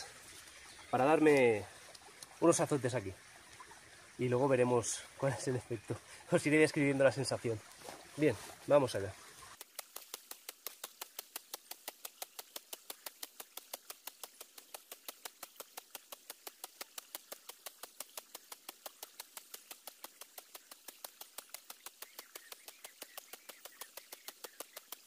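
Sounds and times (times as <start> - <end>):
nettle stems slapping skin: 9.6 - 25.0.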